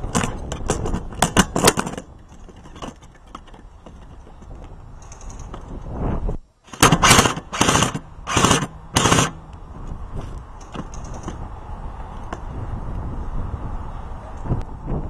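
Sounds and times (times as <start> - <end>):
airsoft gun bursts: 6.7 - 9.4.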